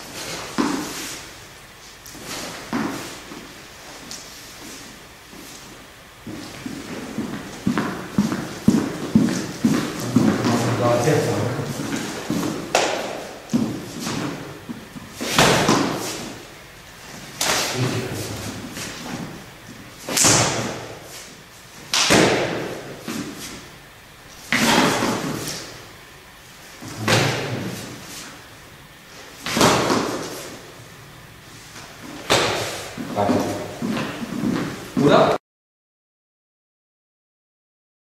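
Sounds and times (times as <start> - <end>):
heavy foot stamps on floor: 5.3 - 21.2, 21.8 - 23.7, 26.8 - 28.1, 29.4 - 30.6, 31.7 - 35.2.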